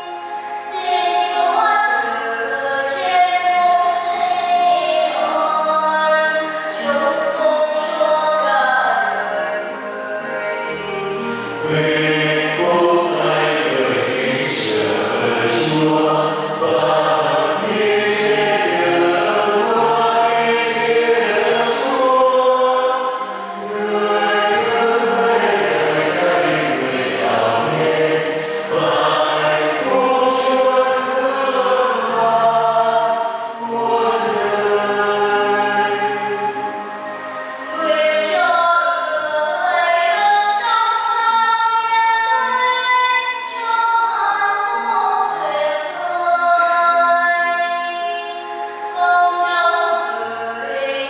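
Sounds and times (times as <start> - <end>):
slow chant-like sacred singing: 0.0 - 51.0.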